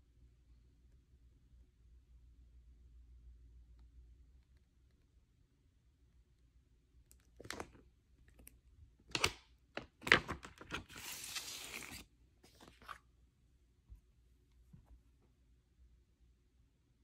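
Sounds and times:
paper rustling: 9.8s - 13.0s.

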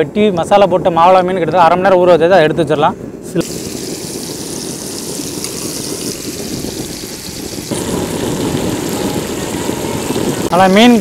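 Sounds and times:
fish sizzling in hot oil: 3.4s - 11.0s.

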